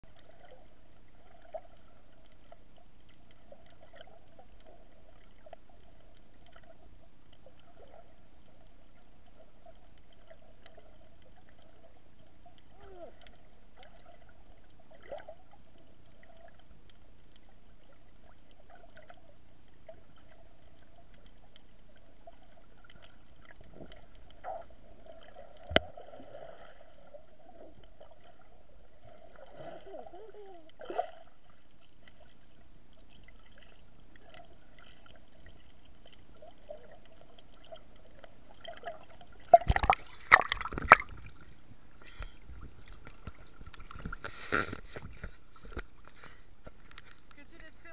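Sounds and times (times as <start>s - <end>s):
faint clicks: 42.0s - 47.4s.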